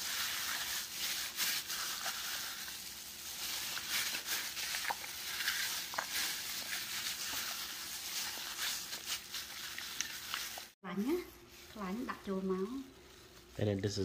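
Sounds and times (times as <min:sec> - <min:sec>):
wet squelching of kneaded meat: 0:00.0 - 0:10.8
plastic gloves crinkling: 0:00.0 - 0:14.0.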